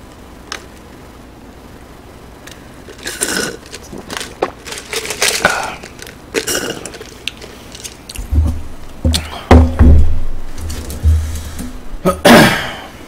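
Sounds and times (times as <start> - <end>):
slurping through a straw: 3.0 - 4.0
cup thumping down: 8.2 - 11.8.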